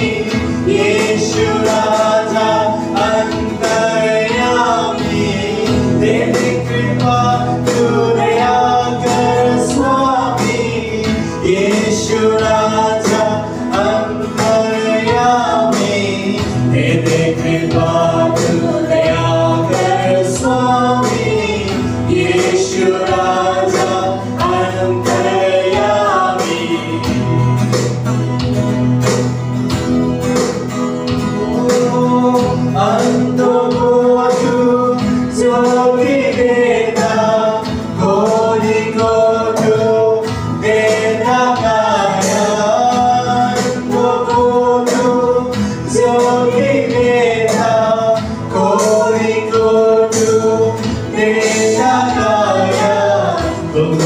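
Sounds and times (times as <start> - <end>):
woman singing: 0.0 - 27.3
man singing: 0.0 - 27.9, 31.2 - 54.0
strummed acoustic guitar: 0.0 - 54.0.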